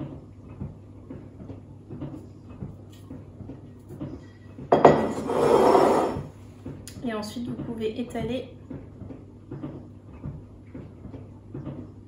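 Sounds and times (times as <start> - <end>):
spatula scraping a bowl: 5.0 - 6.3.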